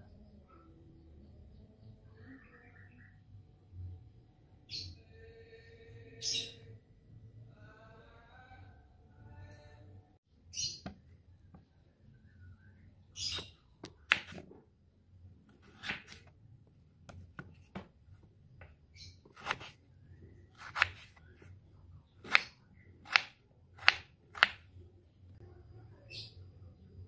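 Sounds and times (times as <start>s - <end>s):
knife striking wooden board: 14.1s - 14.4s, 23.1s - 24.6s.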